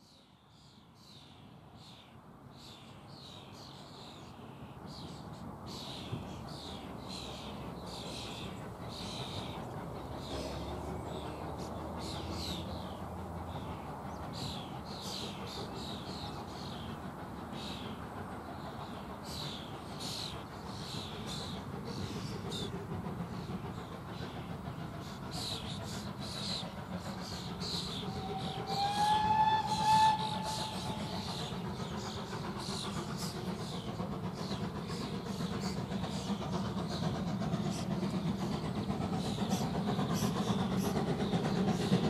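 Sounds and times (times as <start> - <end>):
distant steam locomotive rumble: 0.0 - 42.0
small birds singing: 30.3 - 42.0.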